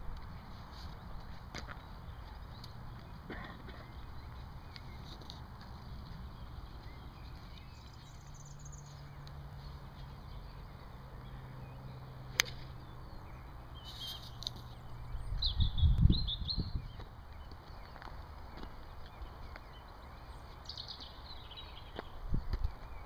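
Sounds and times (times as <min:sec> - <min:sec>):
bird chirps: 0:00.3 - 0:23.0
golf club striking ball: 0:12.3 - 0:12.8.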